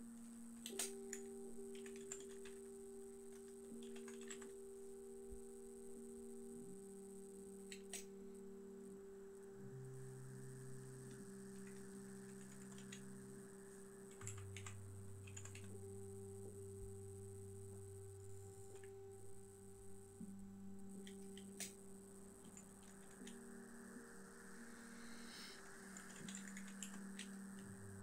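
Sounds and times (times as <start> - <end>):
keyboard keystrokes: 0.6 - 2.6, 3.3 - 4.6, 11.6 - 13.0, 14.1 - 15.8, 26.0 - 27.4.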